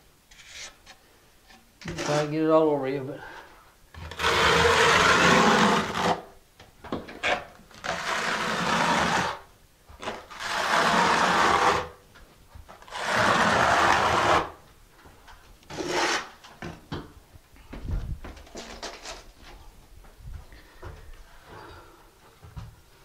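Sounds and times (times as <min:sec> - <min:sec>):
trowel scraping mortar: 0:00.3 - 0:01.0, 0:01.8 - 0:02.4, 0:04.0 - 0:06.3, 0:07.2 - 0:09.4, 0:10.0 - 0:12.0, 0:12.8 - 0:14.6, 0:15.7 - 0:16.4.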